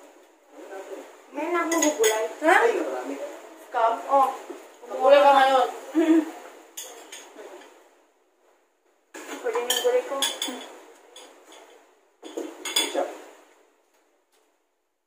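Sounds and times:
cutlery clinking on plates: 0:01.7 - 0:02.3, 0:06.8 - 0:07.8, 0:09.2 - 0:13.2.

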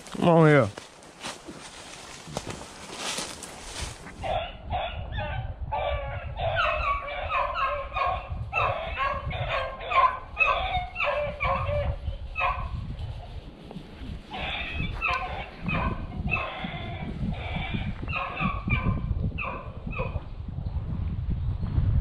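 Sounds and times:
hounds baying: 0:04.2 - 0:12.7, 0:14.3 - 0:20.2.

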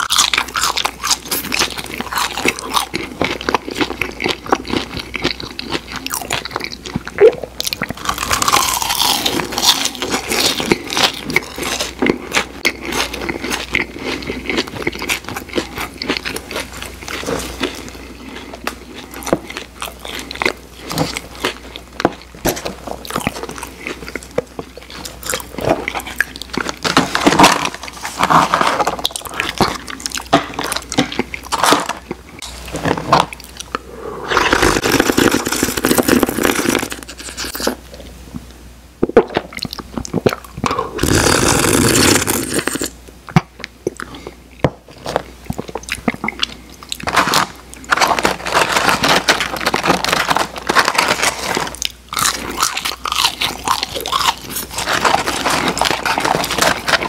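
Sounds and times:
slurping from a cup: 0:33.9 - 0:37.6, 0:40.9 - 0:42.9.

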